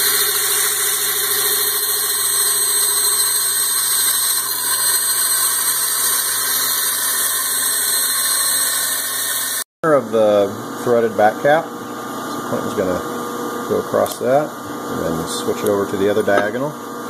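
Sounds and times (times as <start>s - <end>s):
bandsaw cutting plastic: 0.0s - 9.6s.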